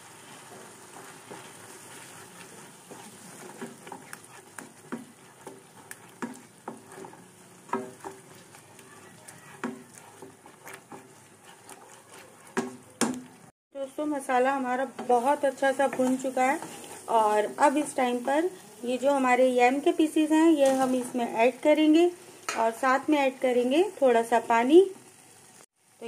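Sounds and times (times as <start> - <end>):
frying sizzle: 0.0 - 26.0
wooden spatula scraping pan: 0.3 - 13.5, 14.9 - 18.6.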